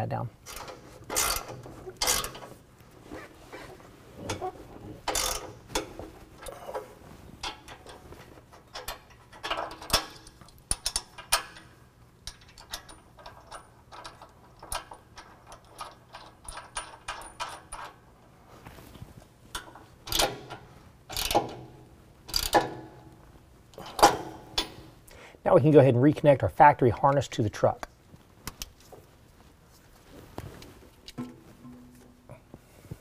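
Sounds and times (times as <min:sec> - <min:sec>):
hand ratchet clicking: 0:00.4 - 0:02.5, 0:05.0 - 0:05.9, 0:19.6 - 0:21.6, 0:22.3 - 0:22.9.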